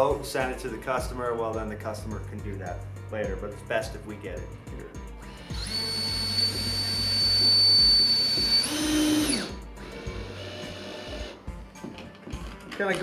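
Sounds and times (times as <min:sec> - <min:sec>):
cordless drill motor whine: 0:05.2 - 0:11.4.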